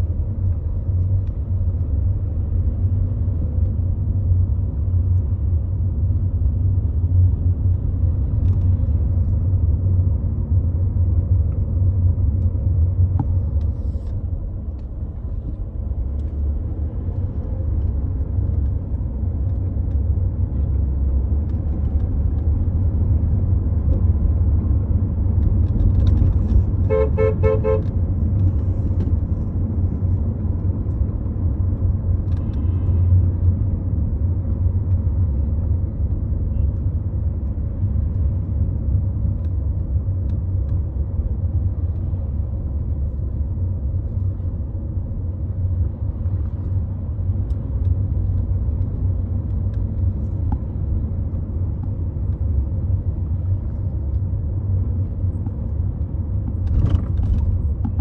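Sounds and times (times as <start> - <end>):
car road and engine rumble: 0.0 - 58.0
car horn short toots: 26.8 - 27.9.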